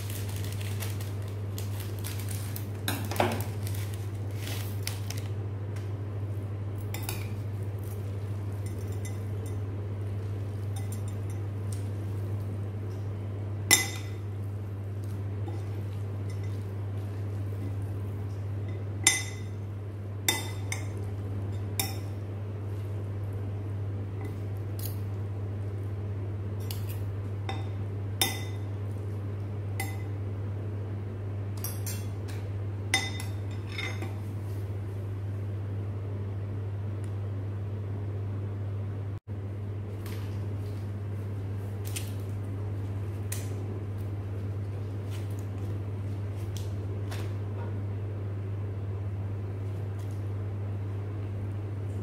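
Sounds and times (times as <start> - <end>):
steady low hum: 0.0 - 52.0
cutlery clinking against ceramic bowl: 8.6 - 9.6, 10.7 - 11.5, 15.5 - 16.6.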